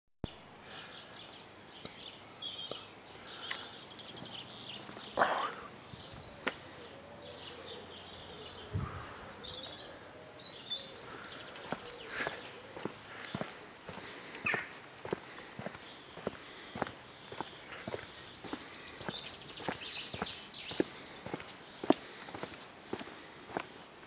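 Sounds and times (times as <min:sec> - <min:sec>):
small birds chirping: 0:00.2 - 0:24.0.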